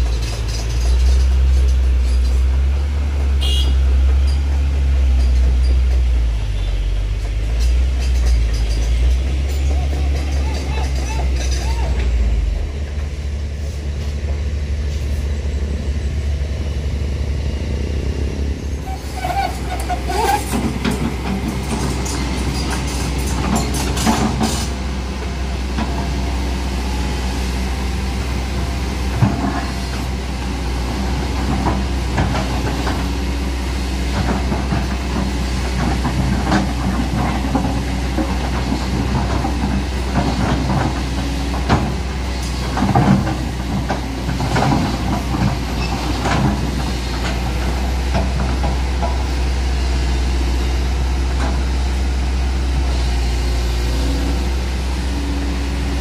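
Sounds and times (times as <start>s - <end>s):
heavy diesel engine running: 0.0s - 56.0s
steel clanking and scraping on gravel: 4.2s - 12.4s, 18.6s - 26.3s.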